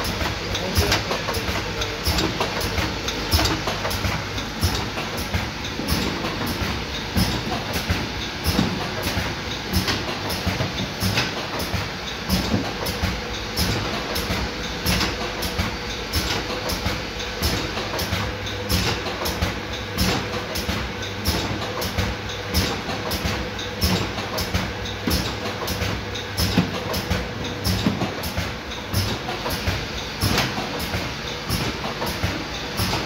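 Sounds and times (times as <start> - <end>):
conveyor machine hum: 0.0 - 33.0.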